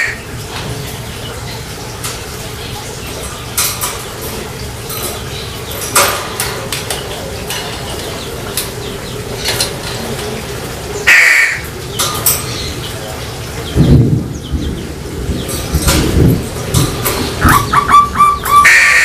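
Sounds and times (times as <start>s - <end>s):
low background noise: 0.0s - 19.0s
crow cawing: 11.0s - 11.6s, 17.5s - 19.0s.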